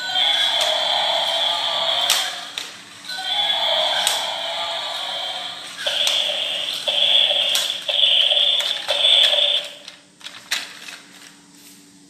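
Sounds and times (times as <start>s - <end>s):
toy electronic shrill tone: 0.0s - 2.5s, 3.1s - 9.8s
plastic clicks of toy handling: 9.8s - 11.4s.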